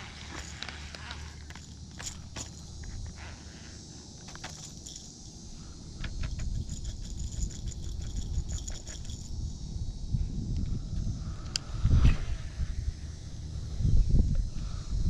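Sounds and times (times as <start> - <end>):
fishing reel clicks and rattles: 0.0 - 5.4, 6.0 - 9.4
wind rumbling on microphone: 5.9 - 15.0.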